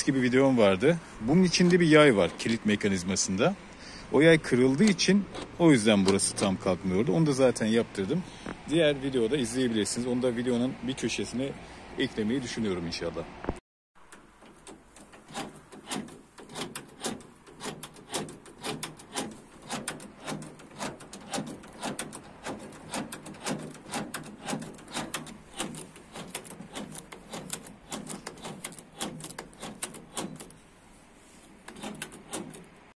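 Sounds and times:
door lock mechanism clicking: 14.0s - 30.6s, 31.7s - 32.9s.

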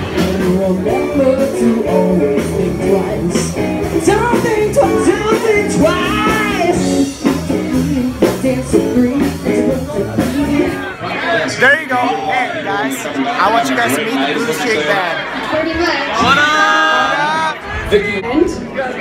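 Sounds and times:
loud rock music with singer: 0.0s - 17.9s.

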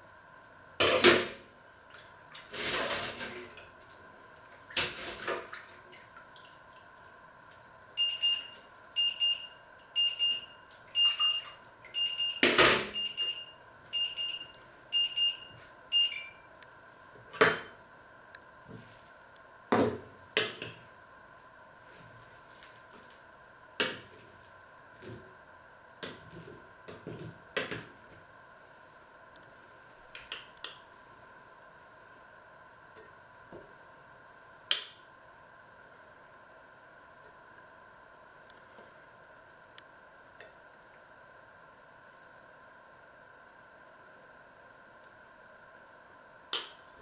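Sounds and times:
steady hum: 0.0s - 47.0s
electronic timer beeping: 8.0s - 16.5s.

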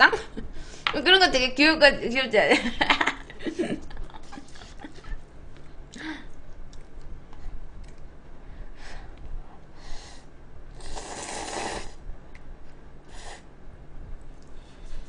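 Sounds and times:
sip of broth: 10.8s - 12.0s
slurping noodles: 10.8s - 12.0s.

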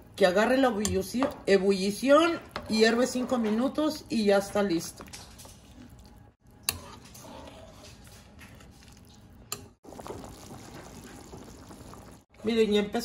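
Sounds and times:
ladle stirring broth in pot: 4.9s - 12.1s.

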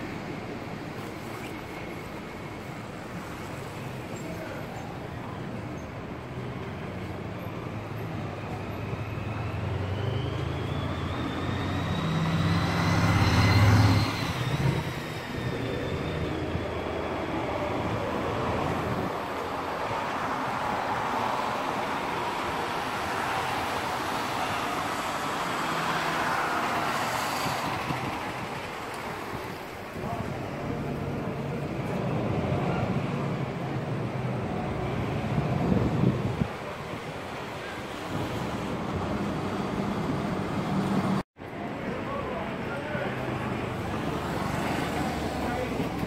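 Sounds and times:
traffic hum: 0.0s - 46.0s
vehicle driving past: 9.1s - 15.1s.

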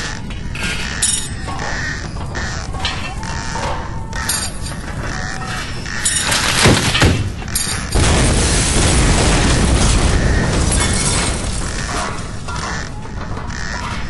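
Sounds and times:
building collapsing: 0.0s - 14.0s
heavy earthquake rumble: 0.0s - 14.0s
loud crashes: 4.6s - 14.0s.

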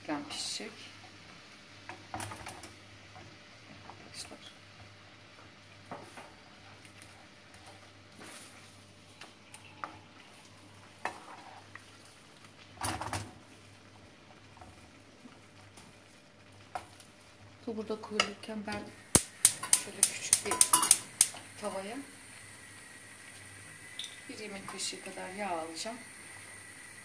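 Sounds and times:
faint simmering sizzle: 0.0s - 27.0s
wooden spatula scraping pan: 11.0s - 11.8s
spatula clatter: 19.2s - 21.4s.

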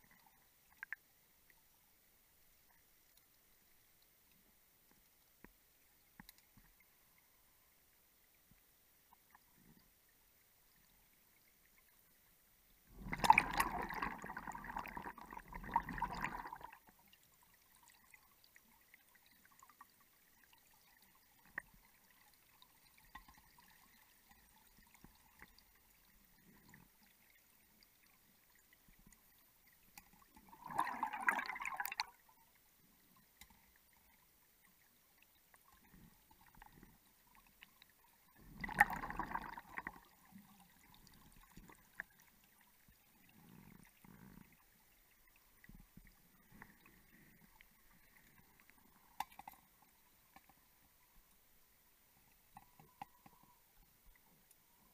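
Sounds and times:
bubbles gurgling underwater: 12.9s - 16.8s, 30.4s - 32.1s, 38.4s - 40.1s.

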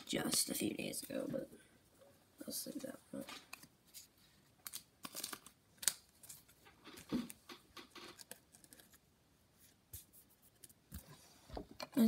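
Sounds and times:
cards rustling and tapping: 3.2s - 9.0s.

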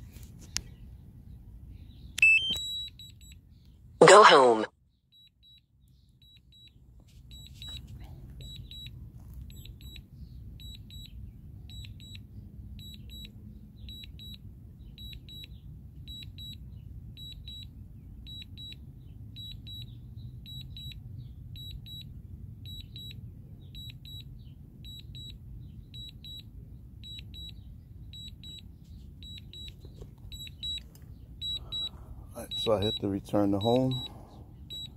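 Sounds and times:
short high beeps in pairs: 2.2s - 3.4s, 4.0s - 5.6s, 7.3s - 8.9s, 23.8s - 30.8s, 31.4s - 34.9s.

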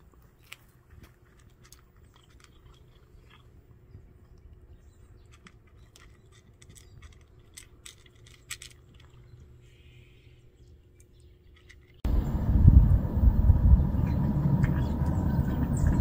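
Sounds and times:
cat crunching food: 0.0s - 9.6s.

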